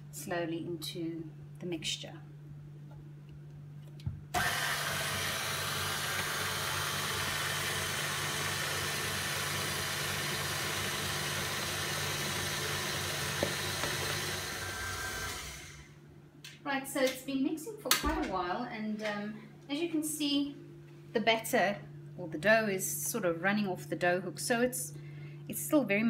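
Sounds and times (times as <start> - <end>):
stand mixer motor hum: 4.4 - 16.0.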